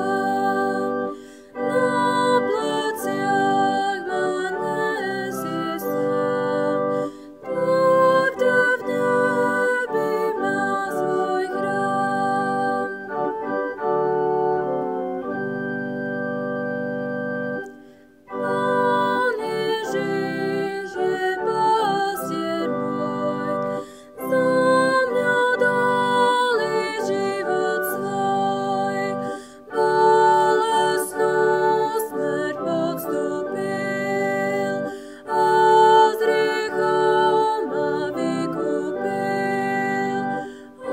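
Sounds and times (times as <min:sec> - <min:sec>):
church organ playing hymn: 0:00.0 - 0:40.9.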